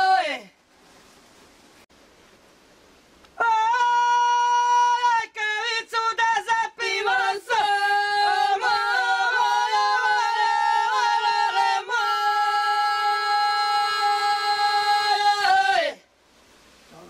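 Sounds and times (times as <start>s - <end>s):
women singing folk song: 0.0s - 0.5s, 3.4s - 16.1s.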